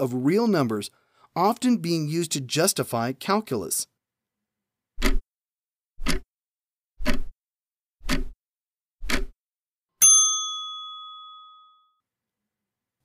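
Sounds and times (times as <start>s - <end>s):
clock ticking: 5.0s - 5.2s, 6.0s - 6.2s, 7.0s - 7.3s, 8.0s - 8.4s, 9.0s - 9.4s
bell ding: 10.0s - 12.0s.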